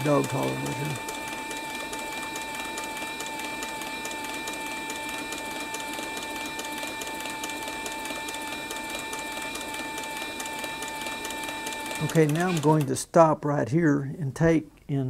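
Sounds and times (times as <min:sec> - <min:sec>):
rapid ticking of needle mechanism: 0:00.0 - 0:13.0
sewing machine motor whine: 0:00.0 - 0:13.0.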